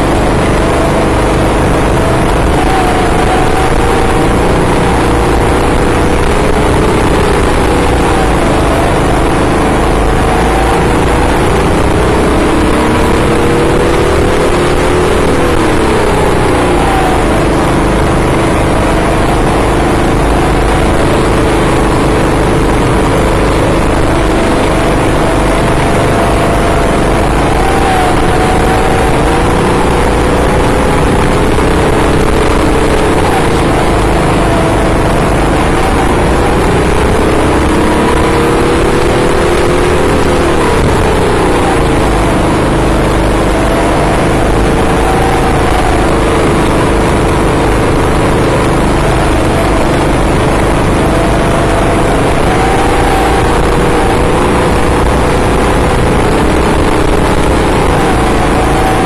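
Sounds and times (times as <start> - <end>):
kart engines racing: 0.0 - 59.0.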